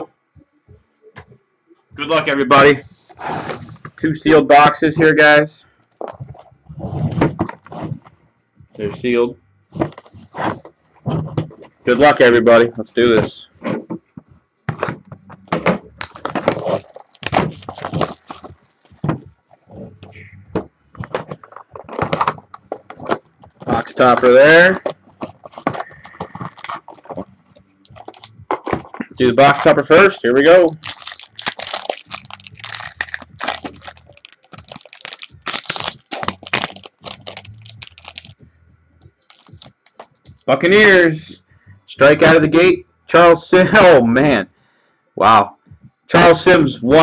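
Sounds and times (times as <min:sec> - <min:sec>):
plastic wrap tearing and crumpling: 0:16.0 - 0:18.9, 0:24.6 - 0:27.2, 0:27.9 - 0:29.7, 0:30.5 - 0:38.4, 0:39.2 - 0:40.4.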